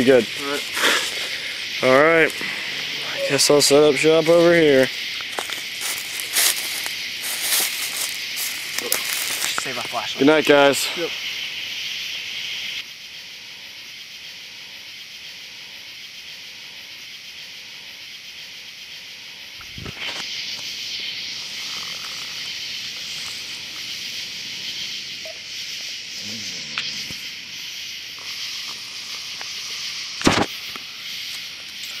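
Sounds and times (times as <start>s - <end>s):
crickets chirping: 0.0s - 32.0s.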